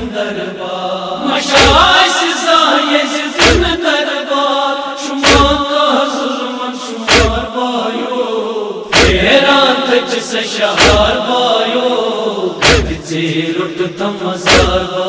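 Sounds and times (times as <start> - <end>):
group of men chanting: 0.0 - 15.0
man singing a mournful lament: 0.0 - 15.0
chest-beating thuds: 1.5 - 1.9, 3.4 - 3.7, 5.2 - 5.6, 7.1 - 7.4, 8.9 - 9.3, 10.8 - 11.2, 12.6 - 13.0, 14.5 - 14.9.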